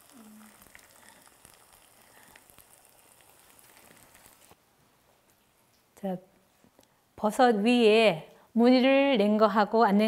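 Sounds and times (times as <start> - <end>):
mushrooms sizzling in oil: 0.0 - 4.6.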